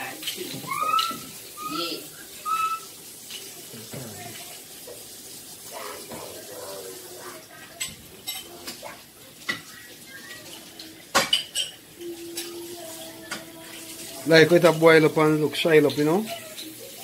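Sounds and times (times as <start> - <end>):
pots and pans clattering: 0.0 - 1.5, 7.4 - 17.0.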